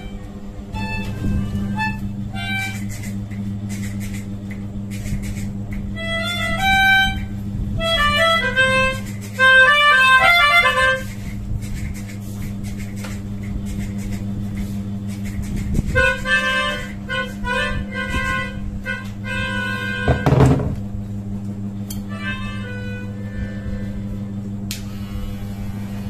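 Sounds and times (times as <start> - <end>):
melodica notes: 0.0 - 3.2, 6.0 - 11.3, 15.9 - 20.3, 22.0 - 24.3
steady low hum: 0.0 - 26.0.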